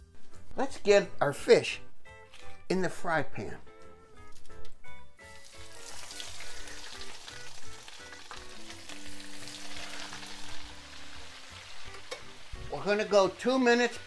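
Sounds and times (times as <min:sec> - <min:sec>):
fish sizzling in oil: 0:05.2 - 0:12.7.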